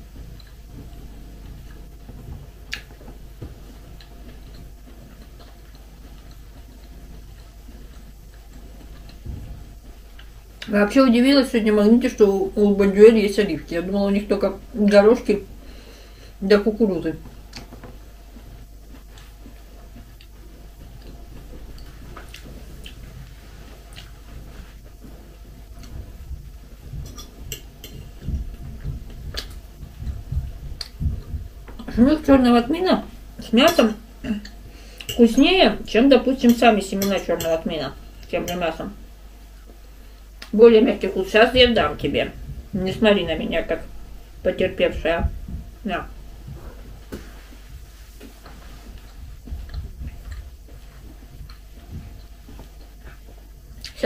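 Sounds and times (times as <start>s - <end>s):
faint chewing: 0.0s - 10.8s, 17.2s - 31.9s, 45.4s - 54.0s.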